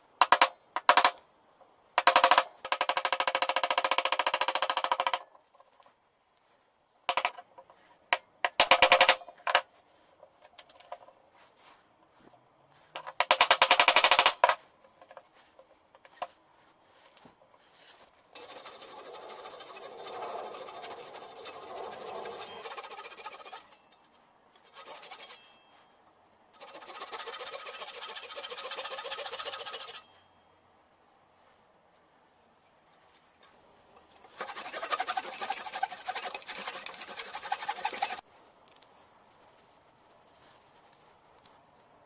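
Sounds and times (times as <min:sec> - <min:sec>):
hand saw cutting plywood: 0:18.4 - 0:23.8, 0:24.6 - 0:25.4, 0:26.6 - 0:30.0, 0:34.3 - 0:38.2.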